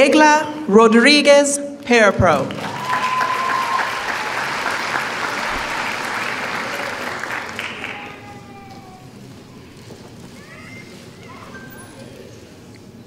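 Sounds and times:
audience applauding: 0:02.5 - 0:08.6.

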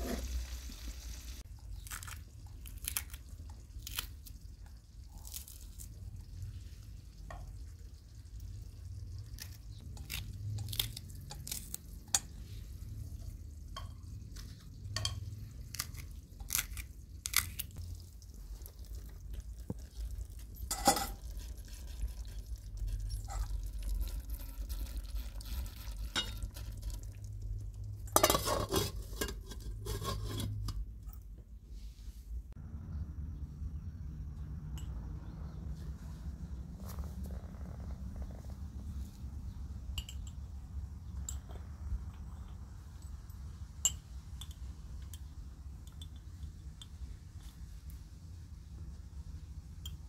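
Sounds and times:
stew cooking in pan: 0:00.0 - 0:02.6, 0:03.2 - 0:31.0
metal lid clattering onto pan: 0:28.2 - 0:30.1.

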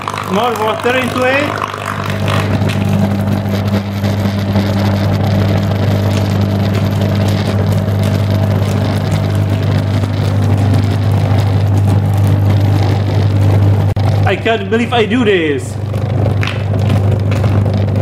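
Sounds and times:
water pouring into jar: 0:00.0 - 0:03.1
deep mains hum: 0:00.0 - 0:18.0
water boiling and crackling: 0:00.0 - 0:18.0.

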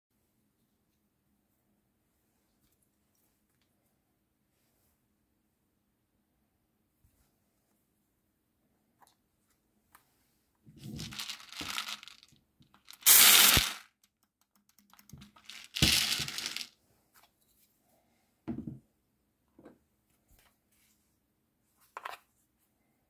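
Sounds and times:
plastic pellets rattling out: 0:10.8 - 0:14.0, 0:15.0 - 0:16.7.

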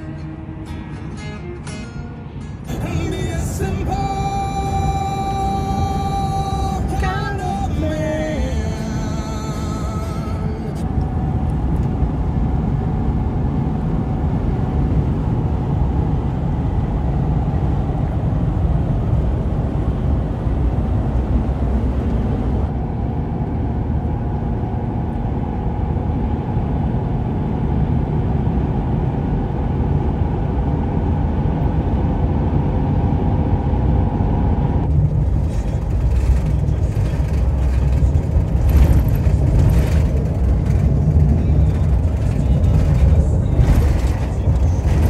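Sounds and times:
road and engine rumble in truck cab: 0:00.0 - 0:45.0.

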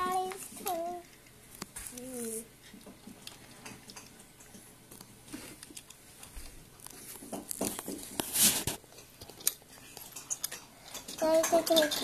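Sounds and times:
plastic toy train cars clicking: 0:10.4 - 0:12.0.

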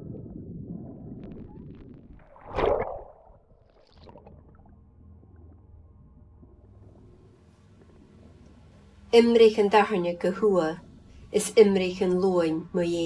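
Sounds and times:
water rushing underwater: 0:00.7 - 0:05.8
loud splash: 0:02.2 - 0:04.3
faint low hum: 0:02.9 - 0:13.0.

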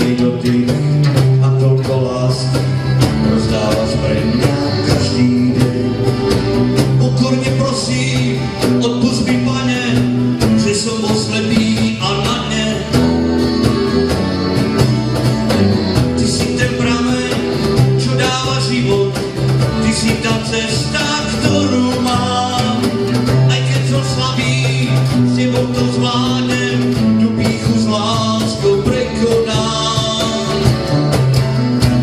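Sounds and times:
strummed acoustic guitars: 0:00.0 - 0:32.0.

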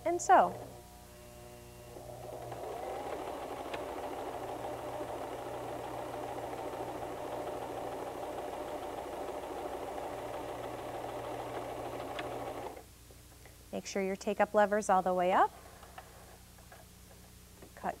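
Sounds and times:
sewing machine running: 0:01.9 - 0:12.8.

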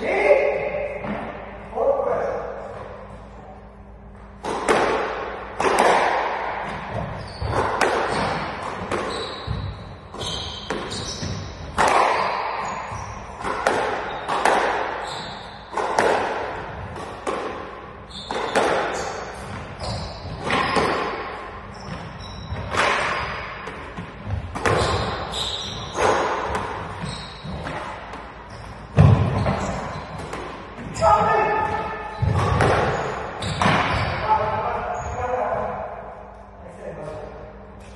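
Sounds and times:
squash ball smacks: 0:04.4 - 0:09.7, 0:10.6 - 0:12.8, 0:13.4 - 0:15.0, 0:15.7 - 0:19.7, 0:22.6 - 0:25.3, 0:25.9 - 0:28.3, 0:31.8 - 0:34.0
shoe squeaks on court floor: 0:06.9 - 0:11.6, 0:12.2 - 0:13.4, 0:14.0 - 0:14.4, 0:15.0 - 0:15.7, 0:18.0 - 0:20.9, 0:21.6 - 0:23.5, 0:24.7 - 0:26.2, 0:26.9 - 0:27.7, 0:28.4 - 0:30.2, 0:30.9 - 0:35.4.

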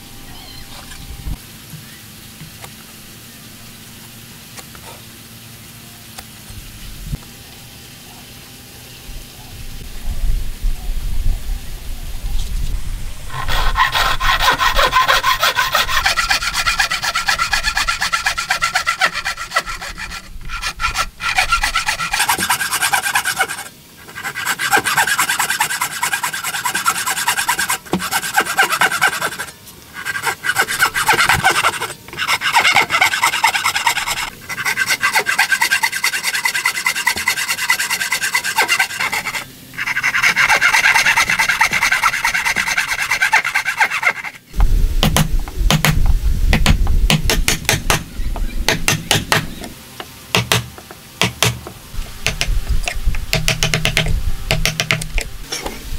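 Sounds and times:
hand saw rasping through wood: 0:13.3 - 0:44.4.

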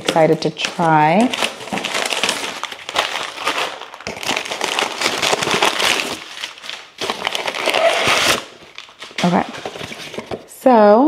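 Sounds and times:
packaging crinkling: 0:00.0 - 0:10.5.

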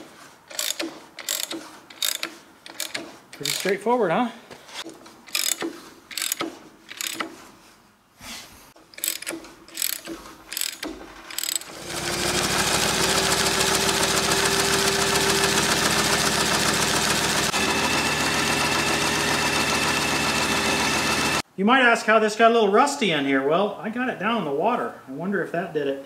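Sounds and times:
sharp metal clicks and knocks: 0:00.5 - 0:03.9, 0:05.0 - 0:07.4, 0:08.8 - 0:11.7
tractor engine running: 0:08.8 - 0:21.4.

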